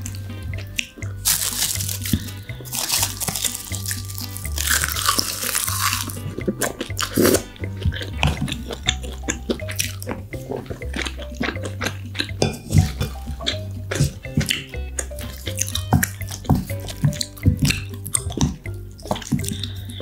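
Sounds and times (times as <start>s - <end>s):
background music with bass line: 0.0s - 20.0s
crunchy chewing: 0.0s - 20.0s.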